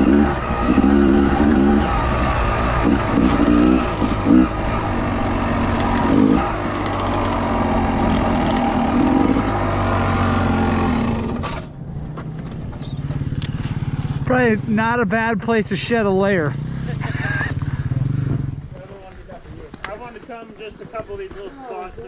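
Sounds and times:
dirt bike engine: 0.0 - 22.0.

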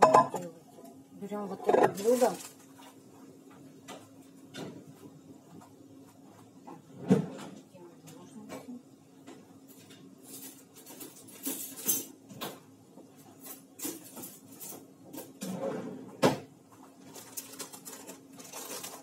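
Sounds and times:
dishes and utensils clinking: 0.0 - 0.5.

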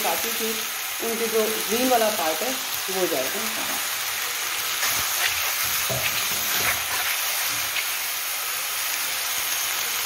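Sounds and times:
food sizzling in frying pan: 0.0 - 10.0
spatula scrapes and taps: 4.8 - 7.9.

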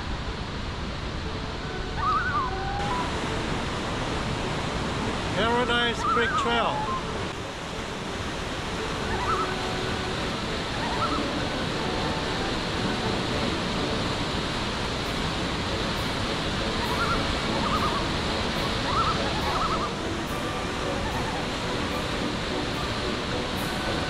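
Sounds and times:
whitewater rapids rushing: 0.0 - 24.0.

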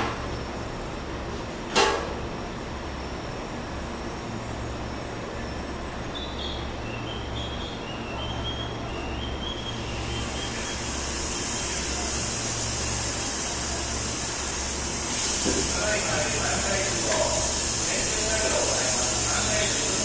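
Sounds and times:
sharp clunk: 1.7 - 2.2
electric train humming: 2.3 - 20.0
rising hiss: 9.6 - 20.0.

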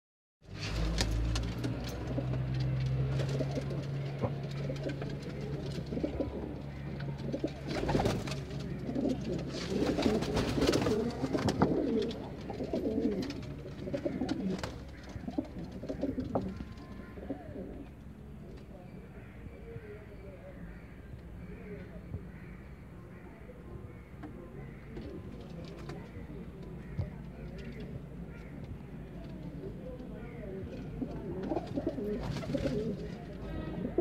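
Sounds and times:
pigeons cooing: 1.9 - 18.1, 24.0 - 34.0.

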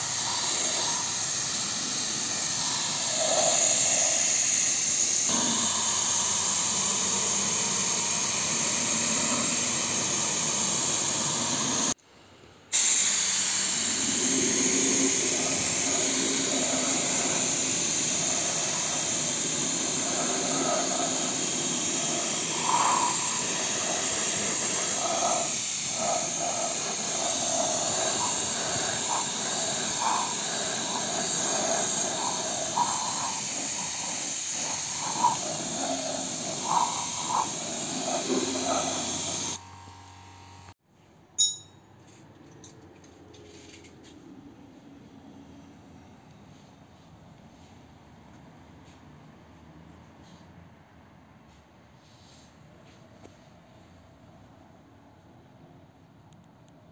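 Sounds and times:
spray gun hissing: 0.0 - 12.0, 12.7 - 39.6.

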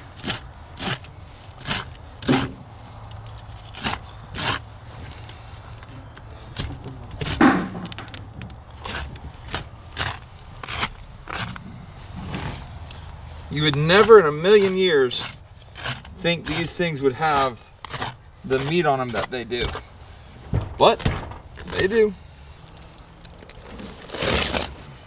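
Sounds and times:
knife scraping fish skin: 0.1 - 2.5, 3.4 - 5.4, 8.0 - 11.6, 13.6 - 19.9.

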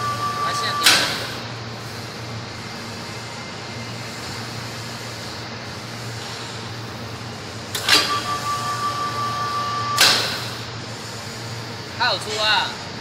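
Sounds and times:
high-pitched whine: 0.0 - 1.5, 8.0 - 10.2.

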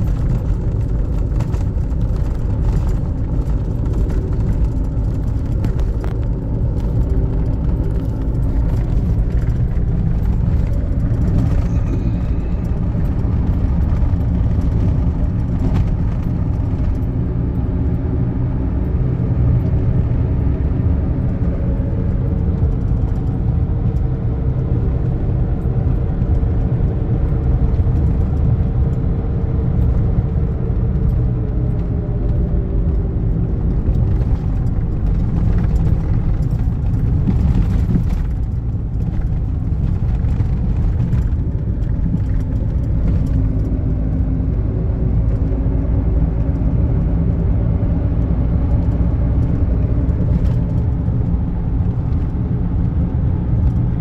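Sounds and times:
tyre rumble: 0.0 - 17.2, 33.4 - 44.0
car engine drone: 0.0 - 54.0.

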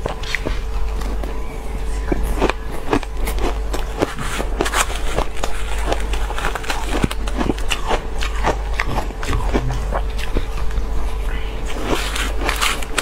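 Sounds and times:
crushed ice crunching: 11.8 - 13.0.

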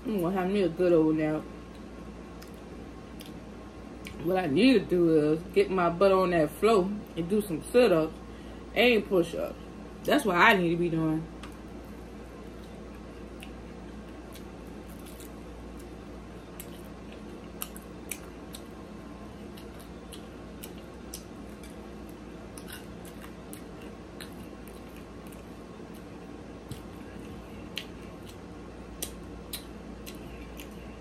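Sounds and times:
steady low hum: 0.0 - 31.0
person chewing with mouth clicks: 12.5 - 18.8, 19.4 - 31.0.

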